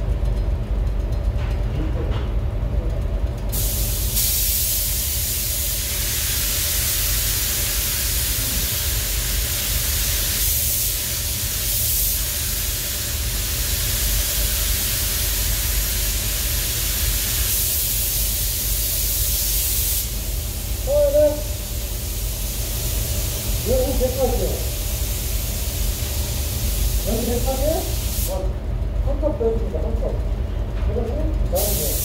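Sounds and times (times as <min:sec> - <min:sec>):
steady low hum: 0:00.0 - 0:32.0
paint spray gun hissing: 0:03.5 - 0:28.4, 0:31.6 - 0:32.0.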